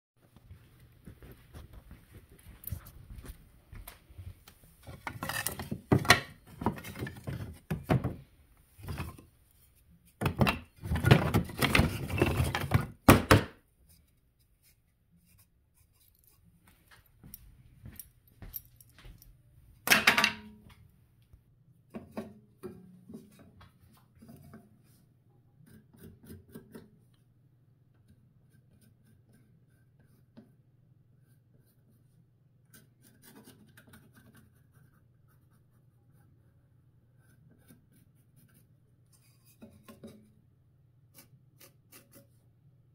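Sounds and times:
wooden offcuts clattering in plastic tote: 10.2 - 13.5
pencil scratching on wood: 28.1 - 40.3.

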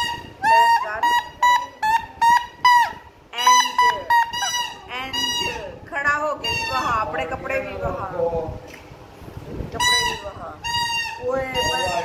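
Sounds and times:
toy trumpet toots: 9.8 - 12.0.

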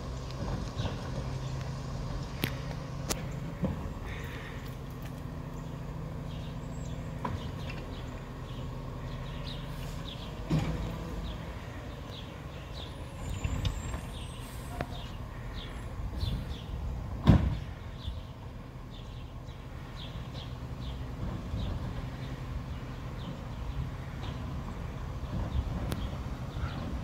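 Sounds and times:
garbage truck running: 0.0 - 27.0
bin banging against truck: 17.2 - 17.7.

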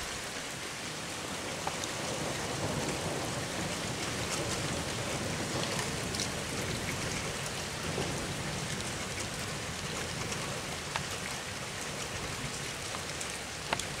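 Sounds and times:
heavy rain: 0.0 - 14.0
raindrops ticking nearby: 0.0 - 14.0.

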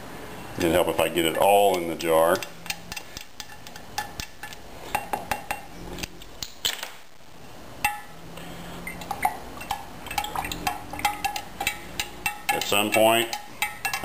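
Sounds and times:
stick clicking against glass jar: 9.0 - 14.0.

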